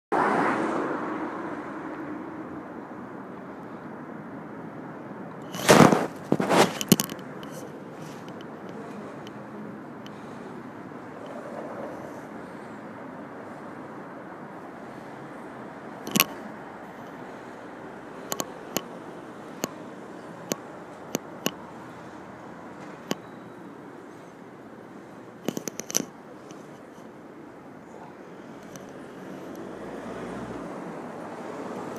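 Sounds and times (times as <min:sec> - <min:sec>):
vehicle passing close: 0:00.1 - 0:03.8, 0:05.2 - 0:26.8, 0:27.8 - 0:31.9
city street traffic hum: 0:00.1 - 0:31.9
loud rustling: 0:05.5 - 0:09.2
sharp clicks: 0:18.2 - 0:18.9, 0:25.4 - 0:27.0.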